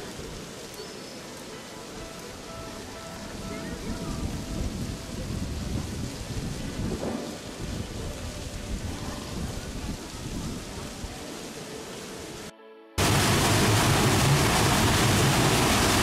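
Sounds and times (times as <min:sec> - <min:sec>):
wind buffeting microphone: 0:03.3 - 0:11.2.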